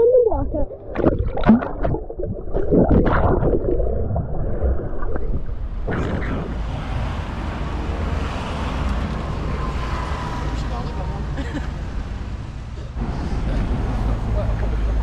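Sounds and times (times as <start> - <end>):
muffled underwater bubbling: 0.0 - 6.7
water splashes: 0.0 - 8.8
street ambience hiss: 6.5 - 15.0.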